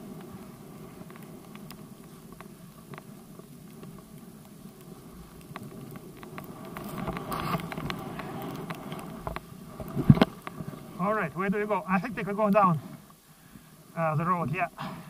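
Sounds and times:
small clicks from ski gear: 0:00.0 - 0:11.0
skis hissing through powder snow: 0:00.0 - 0:15.0.

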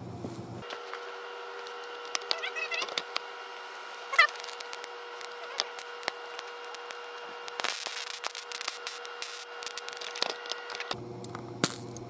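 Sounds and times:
steady electrical hum: 0:00.0 - 0:12.0
burst of noise: 0:01.7 - 0:11.0
squeaky chirping: 0:02.0 - 0:03.2, 0:04.0 - 0:06.9
scattered clicks: 0:04.2 - 0:11.4.

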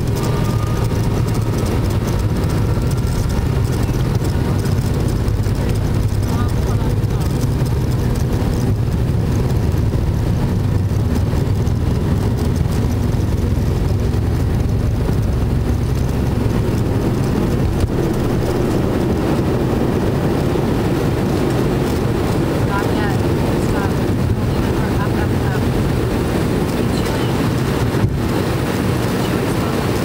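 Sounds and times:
jet engine drone in cabin: 0:00.0 - 0:30.0.

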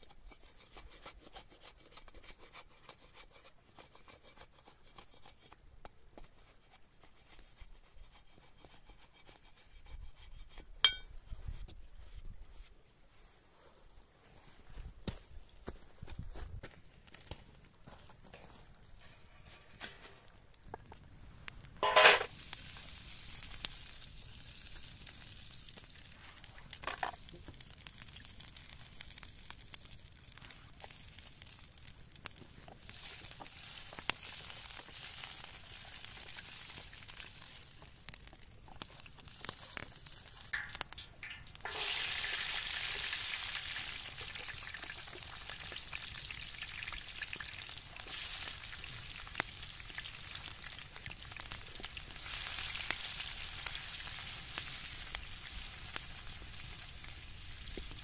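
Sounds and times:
onions sizzling in pan: 0:21.8 - 0:58.0.

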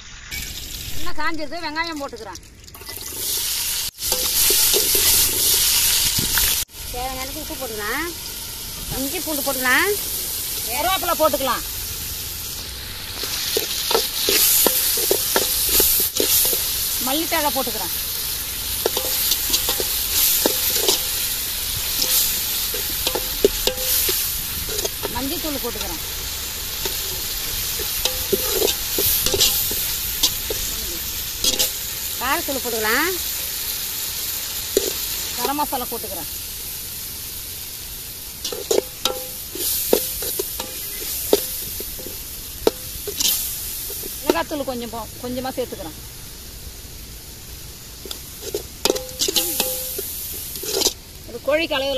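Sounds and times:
onions and tomatoes sizzling in oil: 0:00.0 - 0:51.9
metal ladle clinking against pot: 0:38.5 - 0:43.3, 0:48.5 - 0:50.0.

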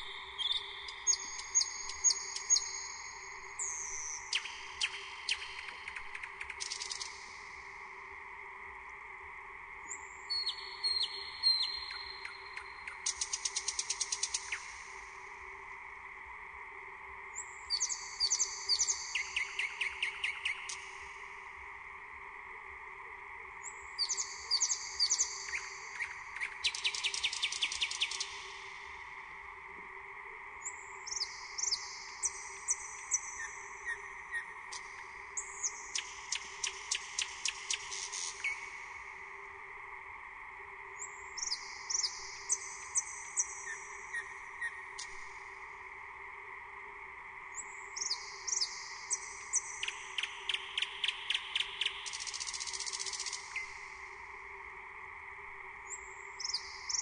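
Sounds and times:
nightingale singing: 0:00.0 - 0:07.2, 0:09.9 - 0:14.8, 0:17.4 - 0:20.9, 0:23.6 - 0:28.5, 0:30.6 - 0:38.9, 0:41.0 - 0:45.3, 0:47.5 - 0:53.8, 0:55.8 - 0:57.0
faint steady hum: 0:00.0 - 0:57.0.

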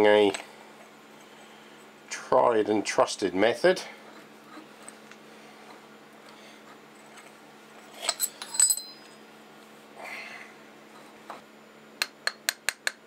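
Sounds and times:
faint steady hum: 0:00.0 - 0:13.0
metallic clinks with ringing: 0:08.0 - 0:09.1.

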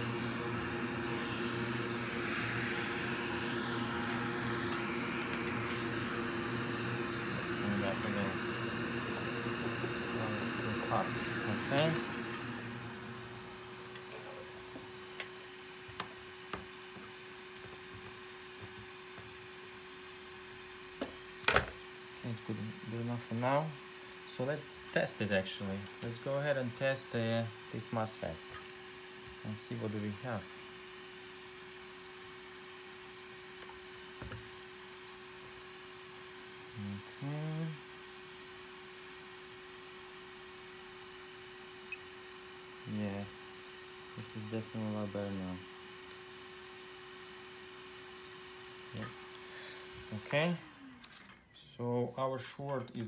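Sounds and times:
electrical hum: 0:00.0 - 0:53.0
person humming mm-hm: 0:36.8 - 0:37.8.

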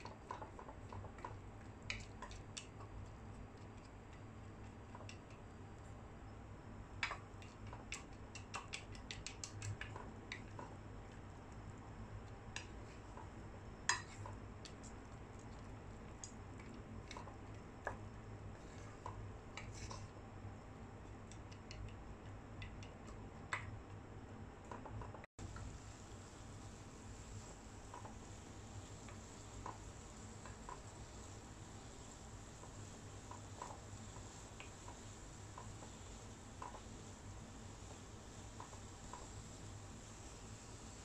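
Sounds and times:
spatula tapping pot: 0:00.0 - 0:05.6, 0:07.0 - 0:10.8, 0:21.1 - 0:23.7.

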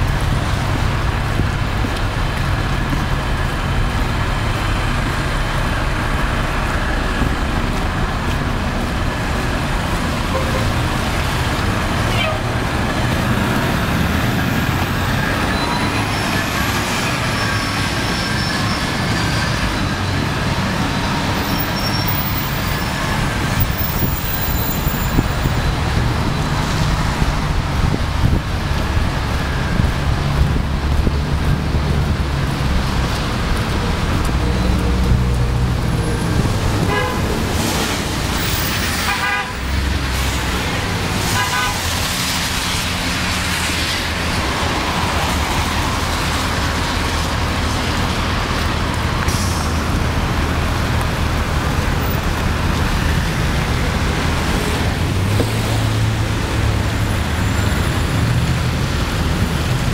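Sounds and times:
street traffic: 0:00.0 - 0:59.9
truck horns honking: 0:10.2 - 0:11.0, 0:12.0 - 0:12.6, 0:36.2 - 0:37.5, 0:38.7 - 0:39.9, 0:41.2 - 0:42.0.

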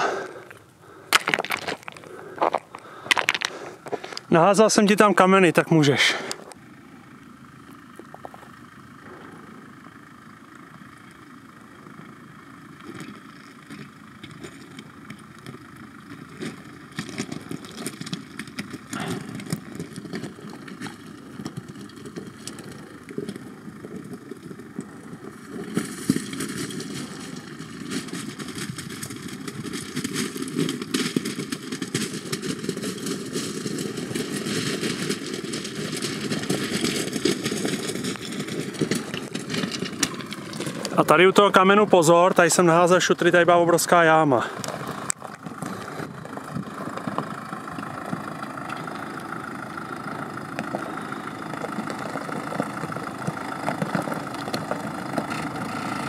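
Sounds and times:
off-road vehicle engine running: 0:00.0 - 0:56.0
stones knocking under tyres: 0:00.1 - 0:04.4, 0:07.6 - 0:09.6, 0:11.9 - 0:56.0.

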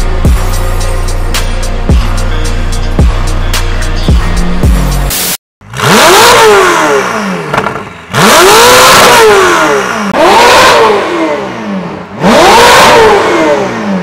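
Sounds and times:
car engine revving: 0:05.6 - 0:14.0.

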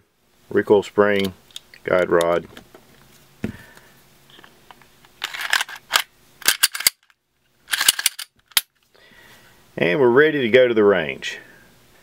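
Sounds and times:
pistol slide scraping: 0:05.2 - 0:07.1, 0:07.7 - 0:08.6
pistol clicks: 0:05.5 - 0:07.0.

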